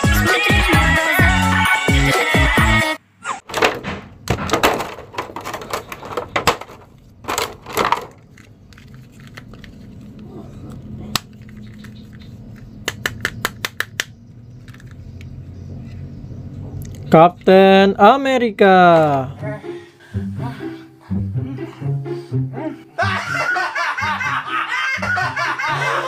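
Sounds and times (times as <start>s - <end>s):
plastic packaging crinkling: 4.6s - 10.2s.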